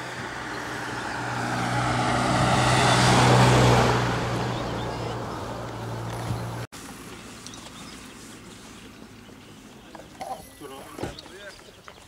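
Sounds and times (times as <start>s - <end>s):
aircraft flying over: 0.0s - 6.6s.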